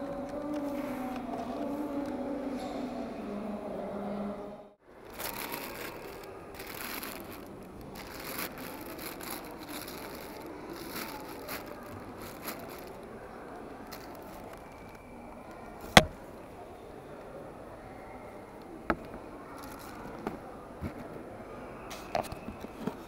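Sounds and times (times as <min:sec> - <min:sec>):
tissue paper rustling and crinkling: 0:05.0 - 0:15.0.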